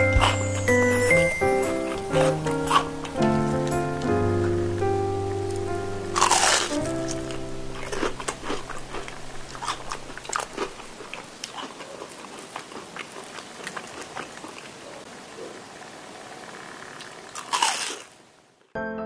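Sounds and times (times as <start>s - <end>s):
crunching and chewing fried food: 1.9s - 3.7s, 6.2s - 15.1s, 16.8s - 18.2s.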